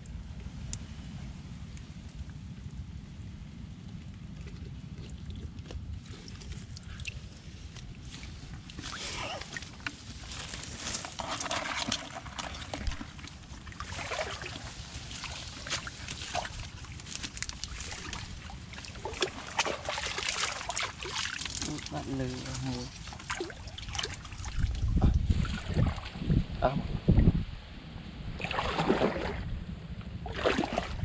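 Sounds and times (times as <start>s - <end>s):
low wind rumble on microphone: 0.0s - 11.2s, 21.0s - 31.0s
hands splashing in mud and water: 8.6s - 26.1s, 28.4s - 29.5s, 30.3s - 31.0s.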